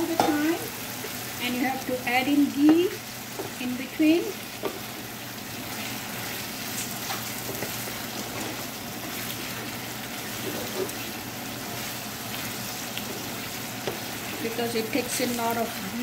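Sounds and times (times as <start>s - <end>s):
chicken sizzling in a frying pan: 0.0s - 16.0s
wooden spatula scraping and knocking: 10.3s - 11.1s.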